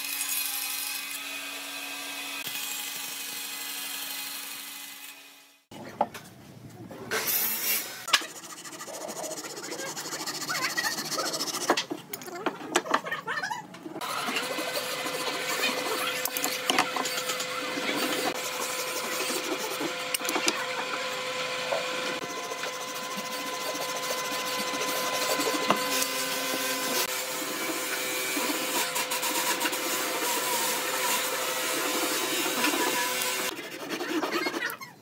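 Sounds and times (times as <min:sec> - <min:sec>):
hand saw cutting wood: 0:07.1 - 0:11.9, 0:14.0 - 0:34.8.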